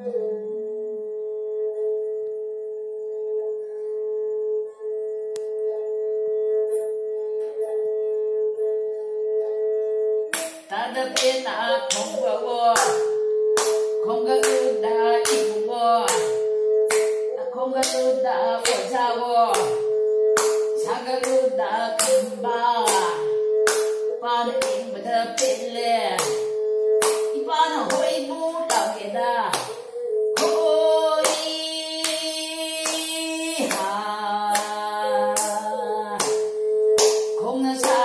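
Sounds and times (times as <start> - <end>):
bowed string instrument melody: 0.0 - 38.0
person clapping a beat: 10.3 - 38.0
woman singing: 10.3 - 38.0.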